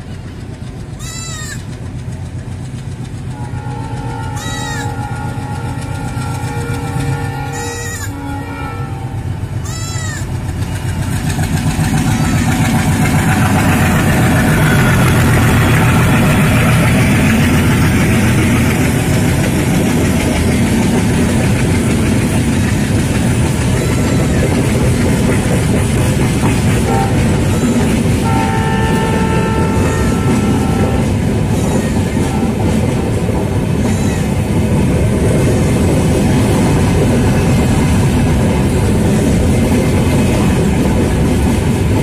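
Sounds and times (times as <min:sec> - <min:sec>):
train rushing past on rails: 0:00.0 - 0:42.0
train horn tones: 0:03.3 - 0:10.4, 0:12.0 - 0:22.2, 0:23.4 - 0:25.2, 0:26.4 - 0:34.4.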